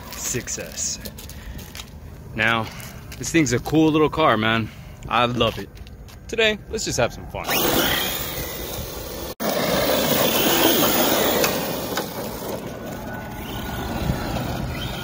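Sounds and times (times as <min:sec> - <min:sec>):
rc truck driving on grass: 0:07.4 - 0:15.0.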